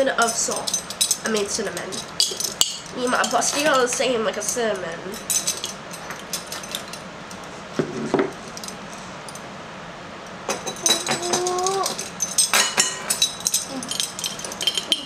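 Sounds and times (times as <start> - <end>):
metal measuring spoons jangling: 0.0 - 7.0, 10.6 - 15.0
spoons clinking against glass jar: 0.0 - 7.0, 10.5 - 15.0.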